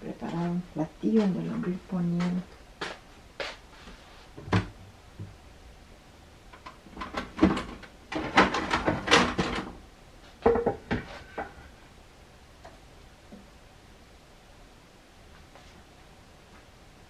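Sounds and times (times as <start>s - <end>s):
cupboard opened and shut: 4.4s - 4.8s, 6.8s - 9.8s.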